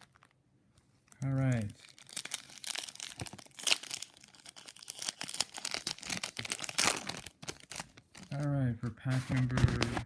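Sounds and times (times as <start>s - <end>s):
foil wrapper crinkling and tearing: 0.0s - 0.4s, 1.0s - 8.6s.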